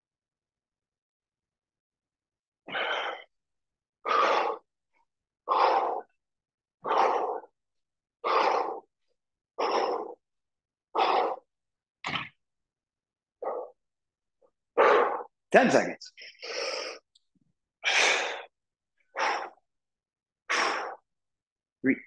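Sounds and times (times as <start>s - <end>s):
man exhaling forcefully: 20.5s - 21.0s.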